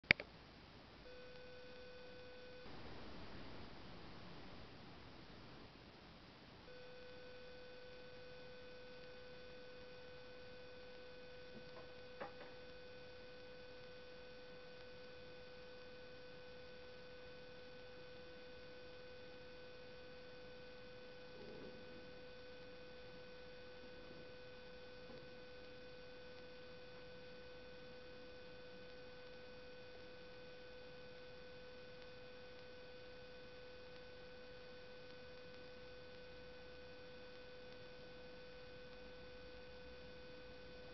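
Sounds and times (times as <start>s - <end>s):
electrical hum: 0.0s - 40.9s
click: 0.1s - 0.3s
low hiss: 0.1s - 8.2s.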